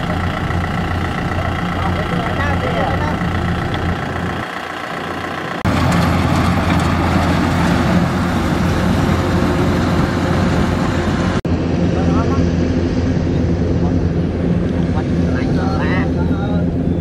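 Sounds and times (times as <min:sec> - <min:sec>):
tractor diesel engine straining: 0:00.0 - 0:11.4.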